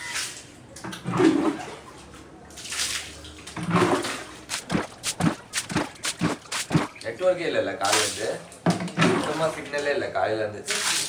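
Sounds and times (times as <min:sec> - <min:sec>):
water splashing on tiled floor: 0:00.0 - 0:11.0.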